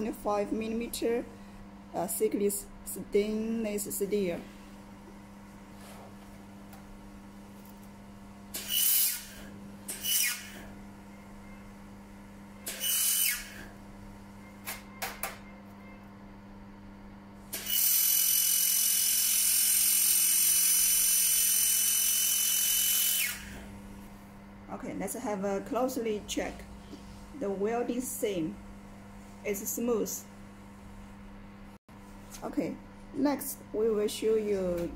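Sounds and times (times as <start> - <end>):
low steady hum: 23.6 - 34.9.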